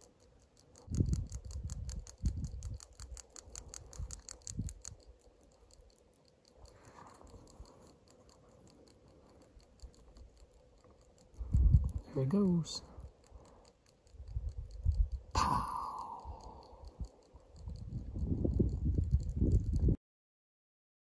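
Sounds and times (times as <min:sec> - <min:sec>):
faint rapid ticking: 0:00.0 - 0:20.0.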